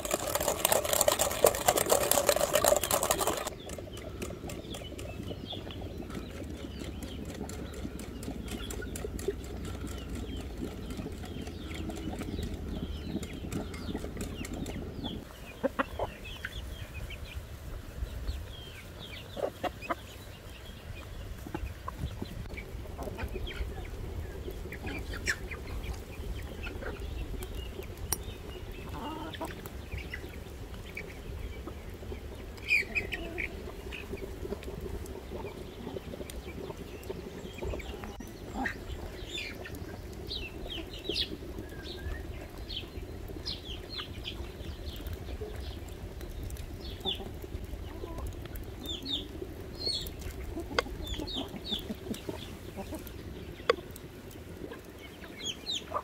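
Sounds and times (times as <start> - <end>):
wooden spoon beating batter: 0.0 - 15.1
chickens clucking: 0.0 - 56.0.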